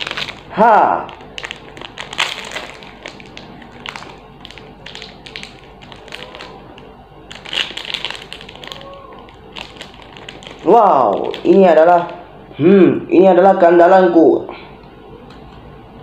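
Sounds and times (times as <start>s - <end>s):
plastic wrapper crinkling: 0.0s - 12.2s.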